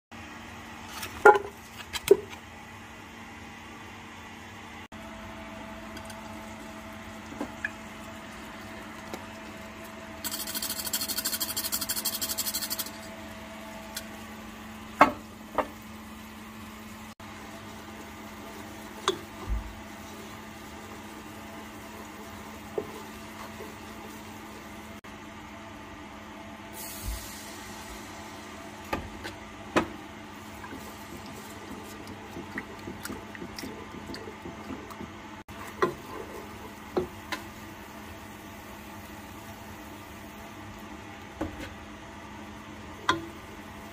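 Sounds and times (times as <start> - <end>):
flour pouring rasp: 10.2 - 13.0.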